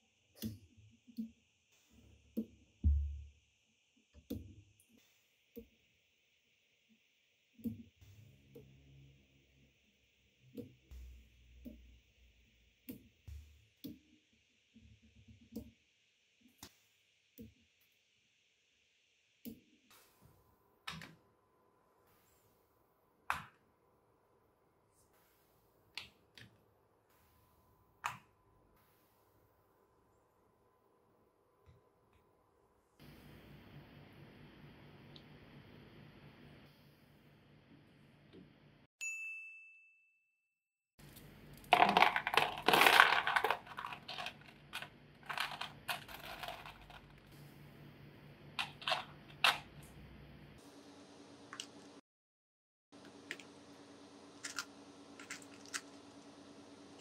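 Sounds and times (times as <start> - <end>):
bright ding: 39.0 - 40.2.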